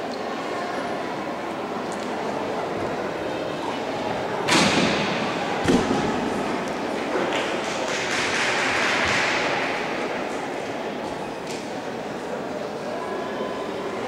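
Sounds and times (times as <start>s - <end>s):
murmur of hall: 0.0s - 14.0s
heavy thumps echoing: 4.5s - 6.6s.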